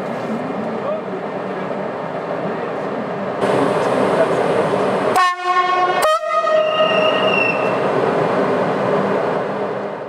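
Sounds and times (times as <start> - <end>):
locomotive running noise: 0.0 - 10.0
locomotive horn blast: 5.1 - 7.7.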